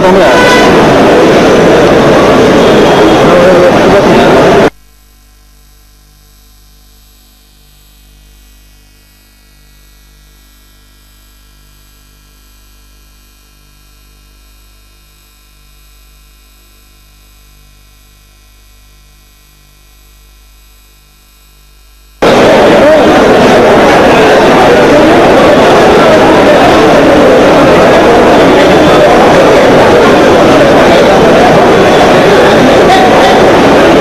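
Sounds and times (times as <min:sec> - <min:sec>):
loud noise cutting off: 0:00.0 - 0:04.7, 0:22.2 - 0:34.0
pulsing electrical hum and buzz: 0:00.0 - 0:34.0.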